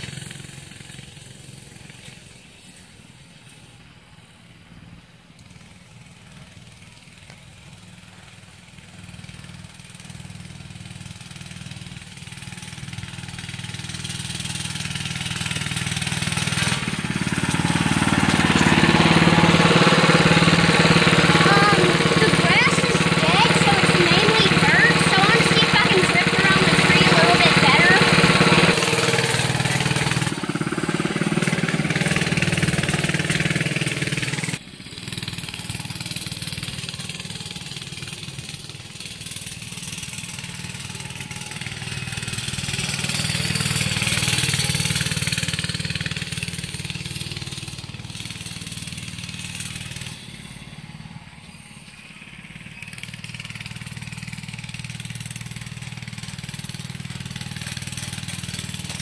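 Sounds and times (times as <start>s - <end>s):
minibike engine running: 0.0s - 59.0s.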